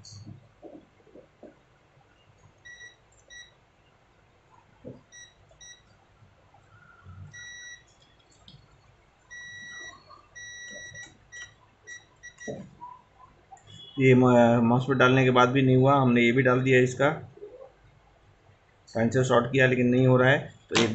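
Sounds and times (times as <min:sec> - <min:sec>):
multimeter beeping: 0:02.6 - 0:03.6, 0:07.3 - 0:08.0, 0:09.3 - 0:12.7, 0:13.6 - 0:14.0.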